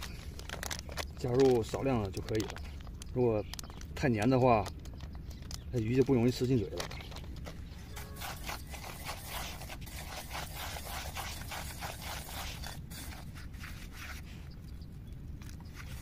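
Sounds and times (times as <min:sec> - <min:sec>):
grains scraping a metal bowl: 0:07.9 - 0:14.0.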